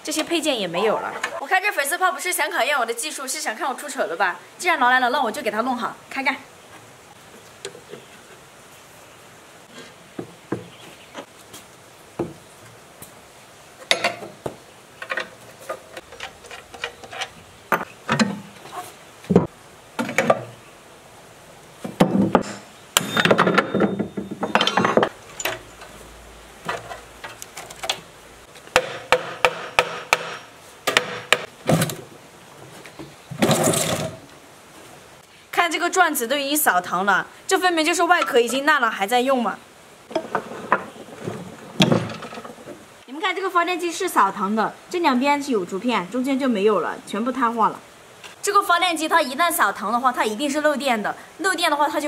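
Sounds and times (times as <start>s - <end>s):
metal clanks and knocks: 13.8s - 14.4s, 21.9s - 26.0s, 40.1s - 42.8s.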